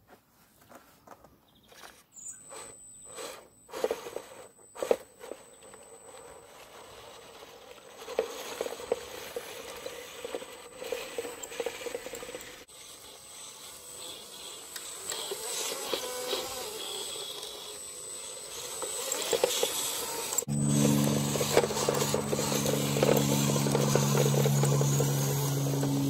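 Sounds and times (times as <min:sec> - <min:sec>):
electric motor whining: 0:02.2 - 0:26.0
tyres crunching over gravel: 0:19.2 - 0:26.0.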